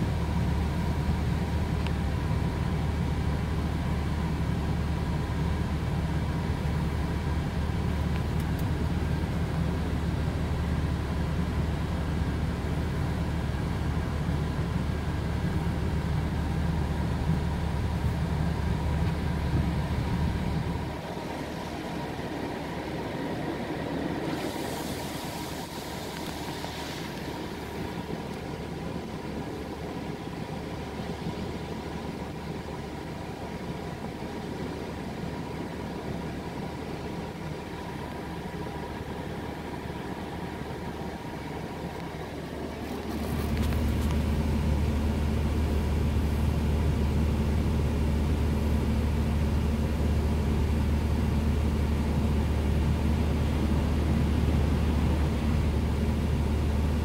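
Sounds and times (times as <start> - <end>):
water spraying on truck: 21.1 - 29.0
heavy low rumble: 42.2 - 50.7.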